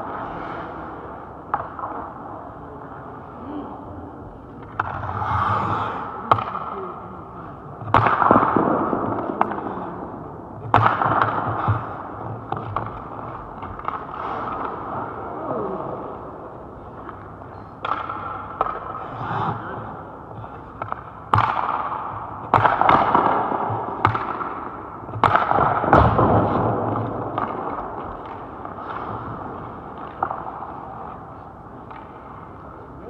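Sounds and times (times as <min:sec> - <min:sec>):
hockey sticks striking pucks: 0:00.0 - 0:02.3, 0:04.6 - 0:06.9, 0:07.8 - 0:15.3, 0:16.9 - 0:32.8
pucks hitting pads and boards: 0:00.0 - 0:03.1, 0:04.6 - 0:07.0, 0:07.7 - 0:16.1, 0:16.9 - 0:33.0
skate blades scraping ice: 0:04.8 - 0:06.1.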